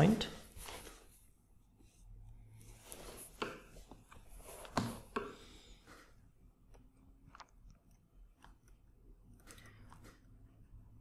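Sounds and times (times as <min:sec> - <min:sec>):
soft handling rustles: 0:00.4 - 0:05.1.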